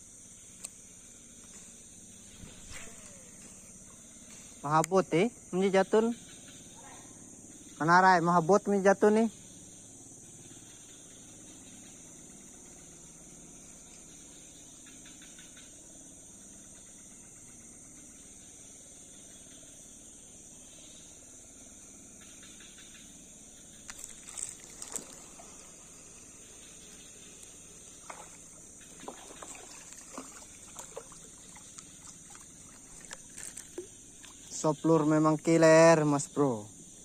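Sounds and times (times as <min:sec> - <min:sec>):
high insect drone: 0:00.0 - 0:37.0
small water splashes: 0:23.8 - 0:34.7.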